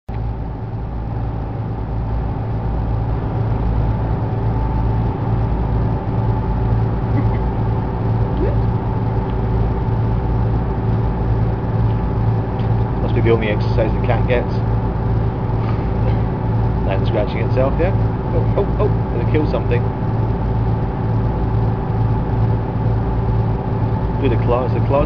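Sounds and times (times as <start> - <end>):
ship engine droning: 0.1 - 25.0.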